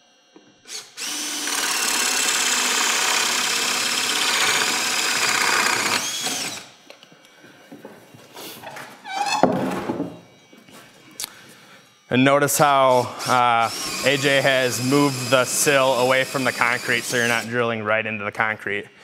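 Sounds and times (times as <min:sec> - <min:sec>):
cordless drill boring through wood: 0:00.6 - 0:06.8, 0:11.2 - 0:17.6.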